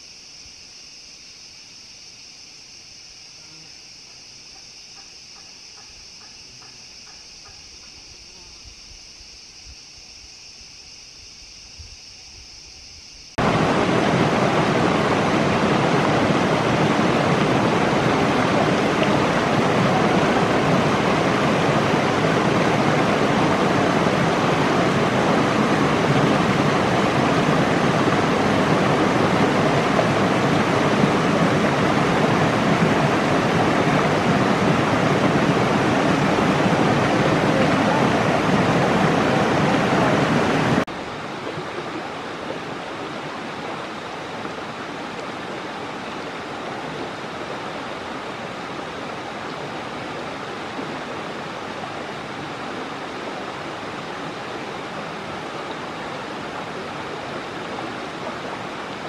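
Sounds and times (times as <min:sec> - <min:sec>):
high-pitched insect drone: 0:00.0 - 0:13.4
stream rushing over boulders: 0:13.4 - 0:59.0.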